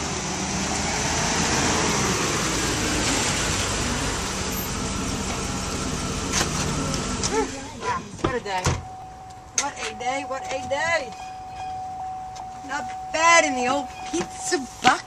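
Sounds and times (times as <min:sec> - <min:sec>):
pickup truck engine running: 0:00.0 - 0:08.2.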